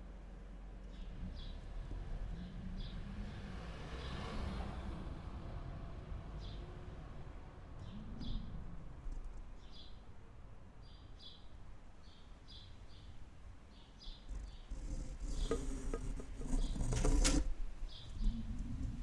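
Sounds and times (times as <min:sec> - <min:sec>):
constant low rumble: 0:13.4 - 0:19.0.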